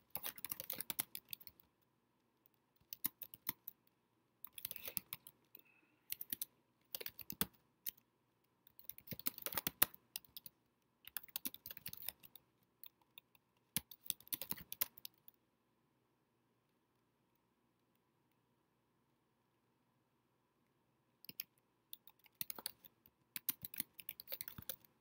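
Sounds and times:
typing on computer keyboard: 0.0 - 1.6, 2.8 - 3.8, 4.4 - 5.4, 6.0 - 8.0, 8.7 - 15.3, 21.2 - 25.0.

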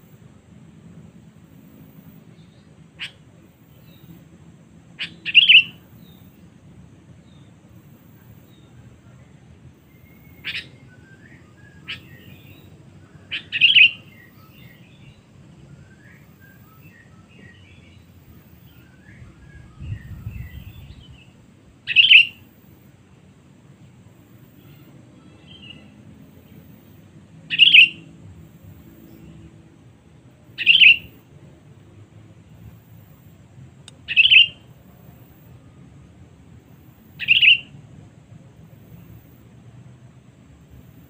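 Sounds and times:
soft bird chirps: 5.0 - 6.4, 7.3 - 22.5, 27.5 - 28.1, 30.6 - 31.2, 33.9 - 35.8, 37.2 - 37.7.

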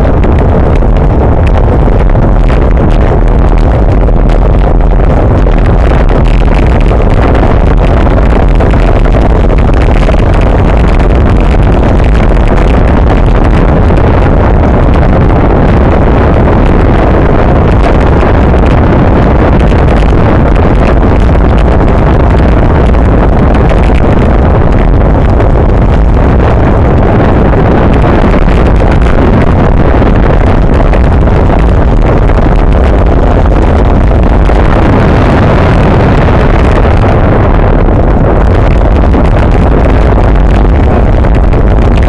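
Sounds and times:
road vibration rumble: 0.0 - 42.0
wind buffeting microphone: 0.0 - 42.0.

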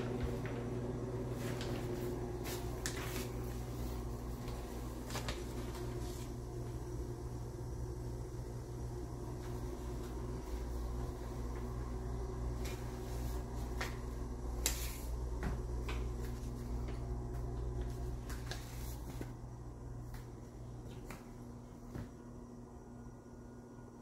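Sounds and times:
steady low hum: 0.0 - 24.0
footsteps on wood floor: 15.3 - 19.4.

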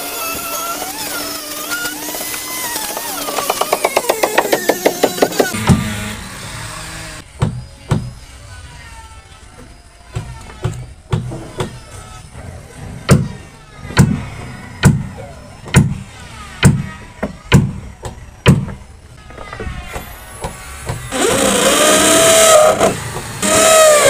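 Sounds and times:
electric drill boring into wood: 0.0 - 7.2, 20.0 - 24.0.

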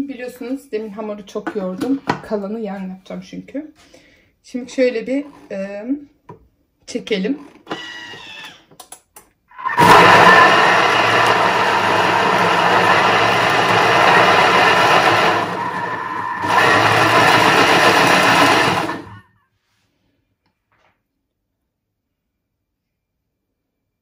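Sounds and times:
food processor motor running: 7.7 - 8.5, 9.6 - 19.2.

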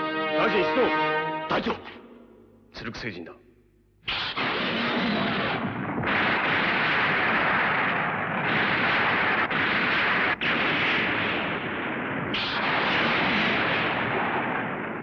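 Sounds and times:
explosion sound effects: 4.1 - 15.0.

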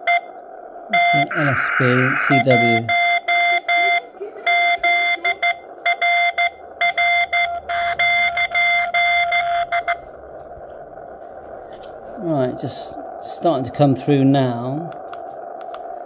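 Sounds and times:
morse code beeps: 0.0 - 11.6
radio band hiss: 0.0 - 16.0.

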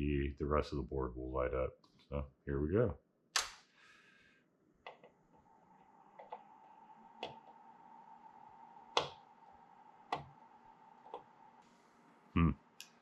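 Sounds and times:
faint steady whine: 4.0 - 13.0.

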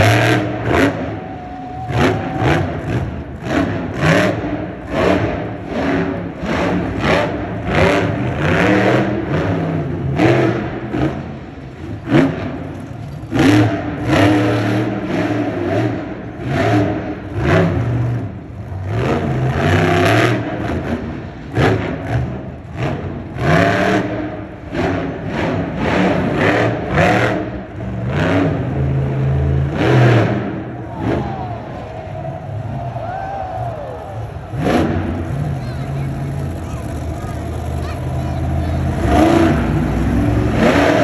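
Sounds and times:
truck engine revving: 0.0 - 41.0.

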